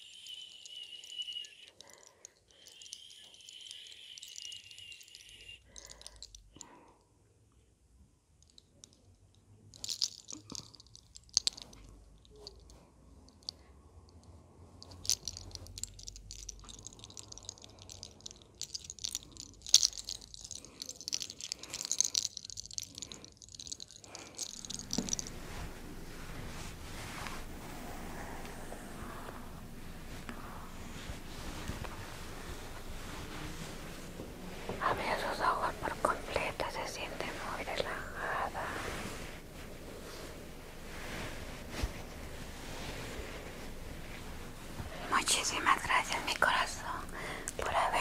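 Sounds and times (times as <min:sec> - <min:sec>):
fingers rubbing through hair: 0:15.0 - 0:47.0.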